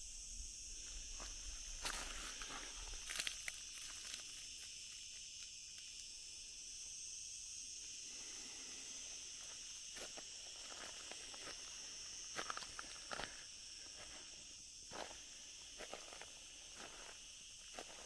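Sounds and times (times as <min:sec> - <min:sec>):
insects shrilling: 0:00.0 - 0:18.0
footsteps crunching on dry leaves: 0:00.8 - 0:04.9, 0:10.0 - 0:14.3, 0:14.9 - 0:18.0.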